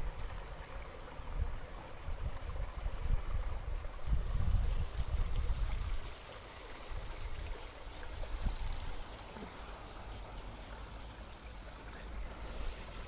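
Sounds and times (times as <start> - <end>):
wind rumble on microphone: 1.2 - 6.2.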